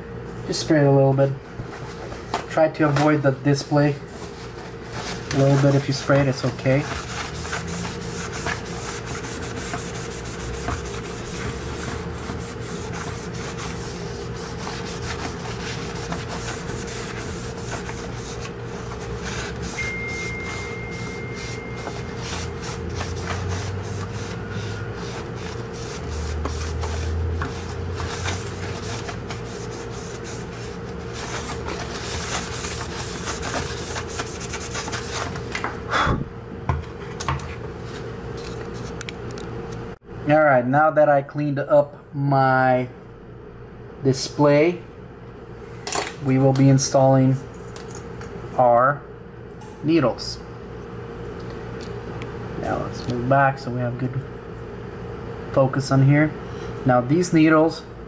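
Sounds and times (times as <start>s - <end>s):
paper towel rubbing on plastic: 4.0s - 19.8s, 21.4s - 35.5s.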